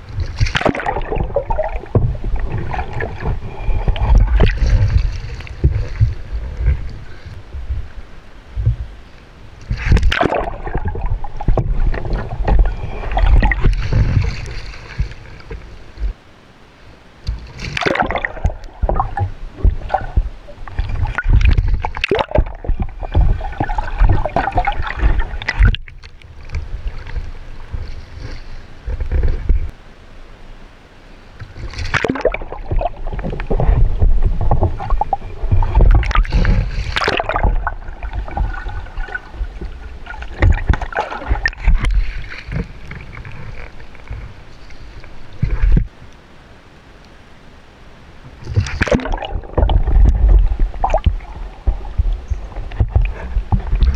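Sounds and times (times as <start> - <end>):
water gurgling and splashing: 0.0 - 8.9, 9.6 - 16.2, 17.3 - 29.7, 31.6 - 46.0, 48.4 - 53.9
heavy low rumble: 0.9 - 16.4, 32.6 - 46.1.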